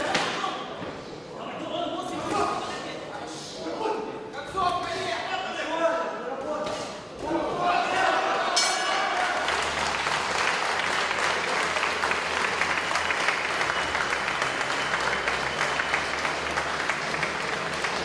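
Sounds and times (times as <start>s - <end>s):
crowd applauding: 8.8s - 18.0s.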